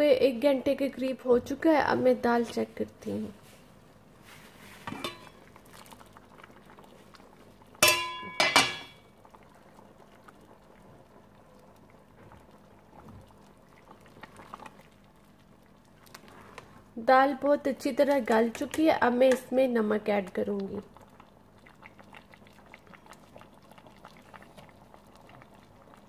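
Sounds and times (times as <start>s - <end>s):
lentils bubbling: 4.0s - 26.0s
ladle stirring: 4.2s - 10.4s
metal pot lid clanking: 4.9s - 5.4s, 7.8s - 9.0s.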